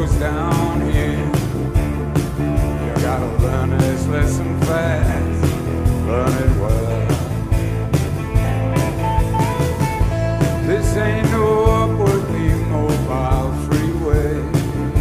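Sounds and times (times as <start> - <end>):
rock music: 0.0 - 15.0.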